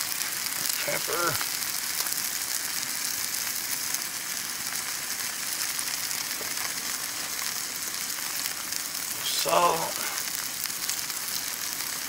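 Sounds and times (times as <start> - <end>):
steak sizzling in a pan: 0.0 - 12.0.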